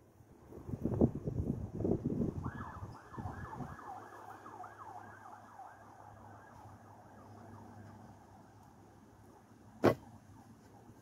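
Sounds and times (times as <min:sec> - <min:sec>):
faint yelping siren: 0:02.4 - 0:08.6, 0:09.2 - 0:11.0.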